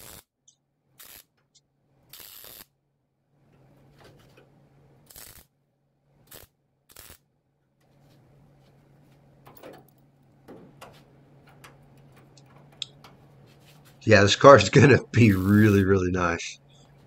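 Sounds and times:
welding bursts: 0:00.0 - 0:00.3, 0:01.0 - 0:01.4, 0:02.1 - 0:02.7, 0:05.0 - 0:05.6, 0:06.2 - 0:07.3, 0:14.3 - 0:16.0
welder low hum: 0:01.0 - 0:01.4, 0:14.0 - 0:17.0.

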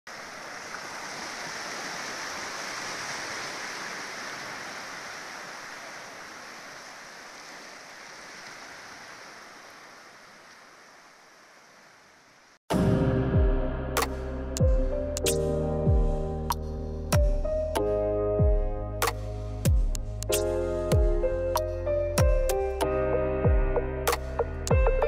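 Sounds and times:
music with a beat: 0:12.8 - 0:25.0.

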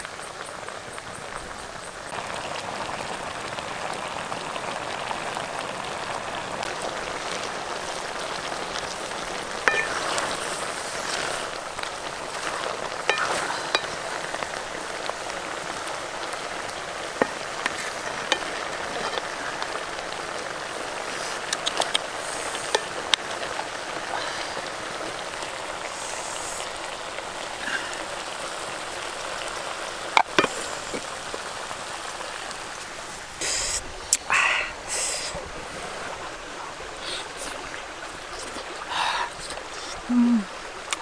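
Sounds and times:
curry simmering and sizzling in a pot: 0:00.0 - 0:41.0.

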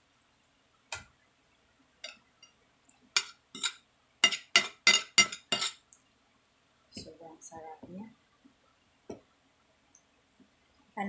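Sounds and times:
metal spoon clinking on plate: 0:03.2 - 0:05.8.

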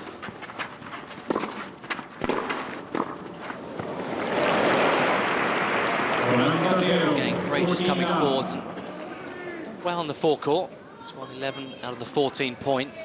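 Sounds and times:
shoes scuffing on clay: 0:00.0 - 0:03.9
racket striking ball: 0:01.3 - 0:03.4
crowd applause: 0:03.8 - 0:09.0.

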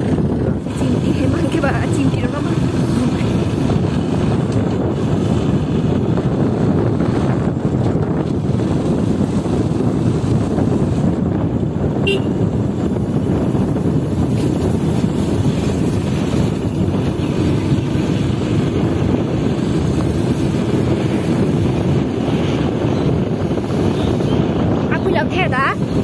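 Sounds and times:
motorcycle road noise: 0:00.0 - 0:26.0
wind rush: 0:00.0 - 0:26.0
horn toot: 0:12.0 - 0:12.5.

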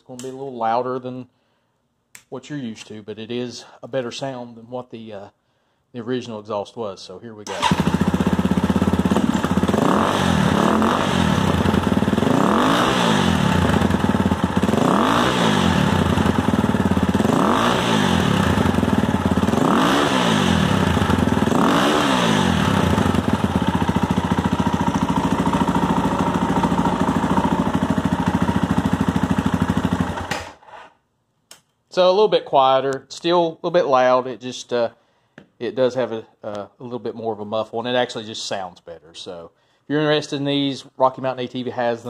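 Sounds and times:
motorcycle engine revving and idling: 0:07.5 - 0:30.5.

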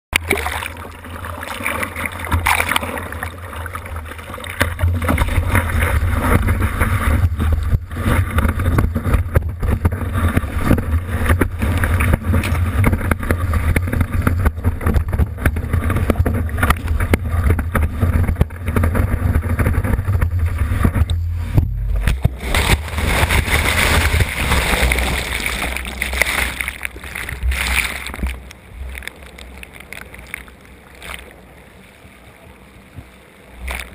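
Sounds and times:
water rushing and splashing: 0:00.2 - 0:33.9
sharp splash cracks: 0:01.5 - 0:03.0, 0:22.0 - 0:31.3.

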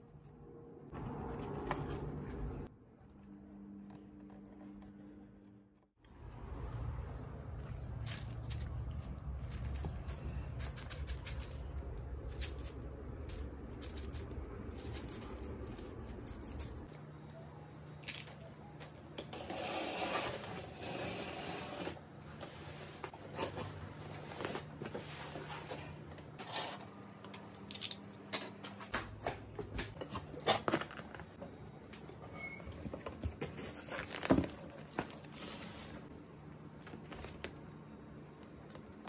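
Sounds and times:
rustles scrapes and knocks: 0:07.7 - 0:16.9.

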